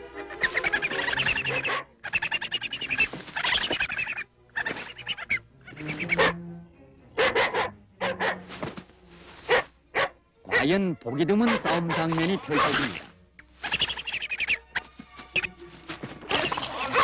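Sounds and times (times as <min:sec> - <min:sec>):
harsh bird calls: 0:00.2 - 0:08.7, 0:10.5 - 0:17.0
rasping snarls and growling: 0:11.4 - 0:13.2, 0:16.2 - 0:17.0.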